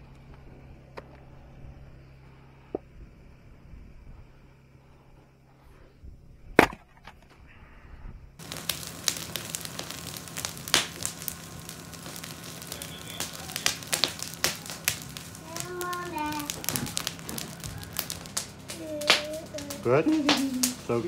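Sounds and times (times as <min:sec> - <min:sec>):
axe chopping into log: 0:06.6 - 0:06.8
campfire crackling and popping: 0:08.4 - 0:21.0.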